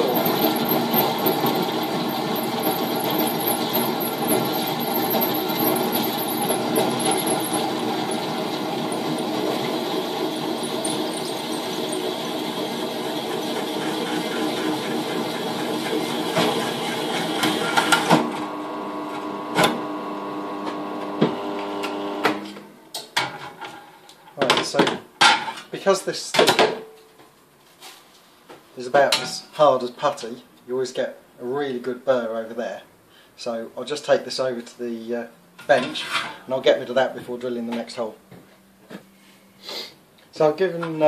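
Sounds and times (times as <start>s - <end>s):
hole saw grinding metal: 0.0s - 18.2s
drill press motor hum: 0.0s - 22.5s.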